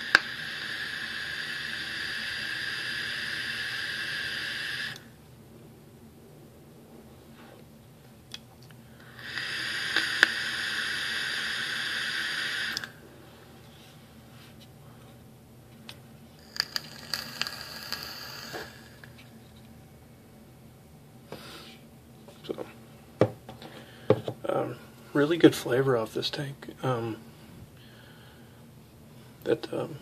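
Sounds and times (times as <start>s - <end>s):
vape airflow hiss: 0.0s - 5.2s, 9.0s - 13.1s, 16.4s - 19.3s.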